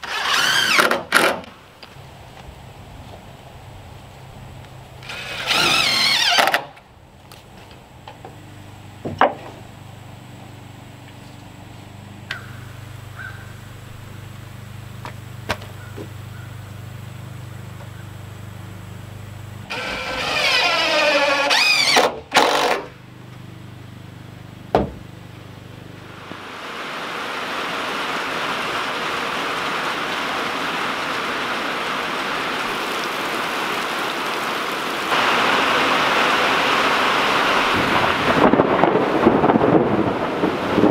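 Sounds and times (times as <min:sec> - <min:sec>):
cordless drill driving screws: 0:00.0 - 0:01.5, 0:05.0 - 0:06.7, 0:19.7 - 0:22.9
rain falling on wet ground: 0:01.4 - 0:18.5, 0:25.8 - 0:40.9
sharp knocks: 0:24.7 - 0:25.1.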